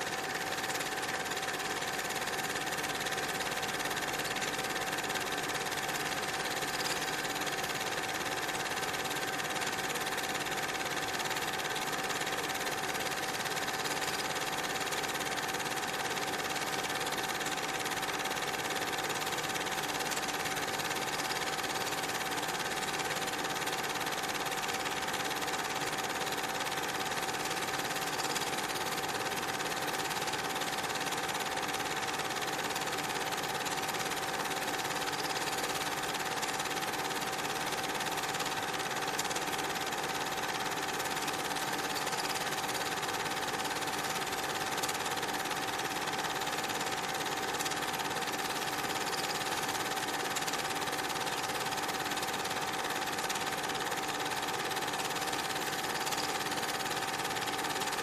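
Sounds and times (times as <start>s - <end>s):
film projector whirring clatter: 0.0s - 58.0s.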